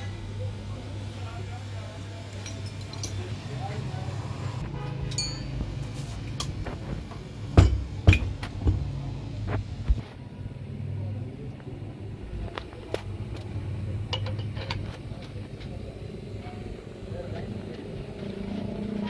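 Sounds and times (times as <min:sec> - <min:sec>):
metal parts and tools clinking: 0:02.4 - 0:03.3, 0:05.1 - 0:05.6.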